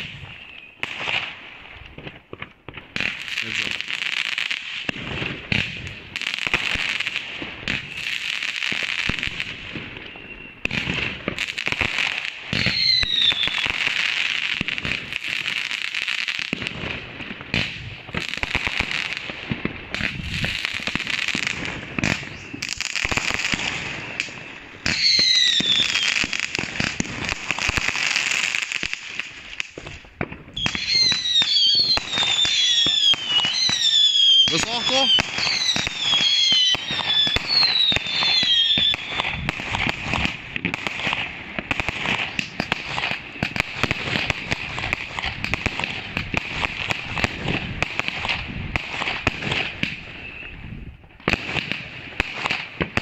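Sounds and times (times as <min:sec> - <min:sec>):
falling firework whistles: 0:00.0 - 0:01.4, 0:04.6 - 0:16.6, 0:19.9 - 0:47.3, 0:47.9 - 0:51.8
fireworks popping and crackling: 0:00.0 - 0:53.0
fireworks hissing: 0:20.0 - 0:48.0.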